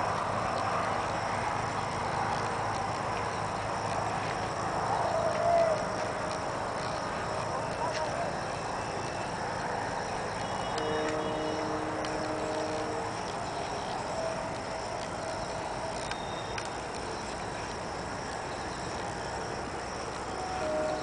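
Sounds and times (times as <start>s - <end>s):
insect drone: 0.0s - 21.0s
faint clicks: 10.3s - 19.1s
faint held tone: 20.3s - 21.0s.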